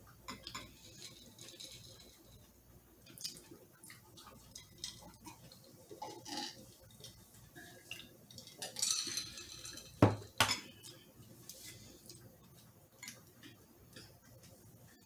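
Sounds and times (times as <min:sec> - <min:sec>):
dishes clinking: 0:00.3 - 0:02.3, 0:08.3 - 0:10.9.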